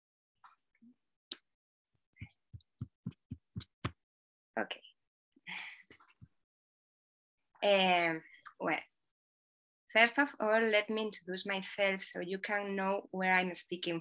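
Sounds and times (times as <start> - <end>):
woman speaking: 4.6 - 4.9, 7.6 - 8.9, 10.0 - 14.0.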